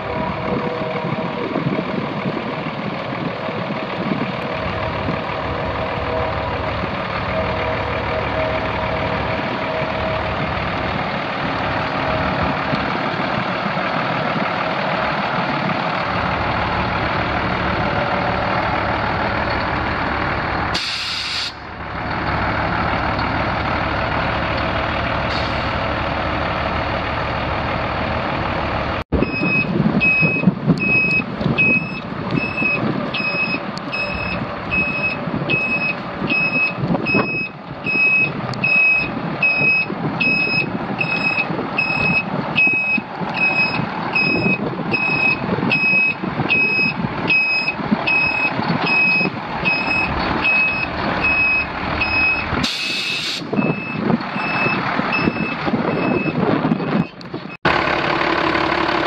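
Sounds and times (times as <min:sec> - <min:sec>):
diesel truck engine running: 0:00.0 - 0:59.0
air hiss: 0:20.8 - 0:21.6, 0:52.6 - 0:53.5
backup alarm beeping: 0:29.2 - 0:57.2.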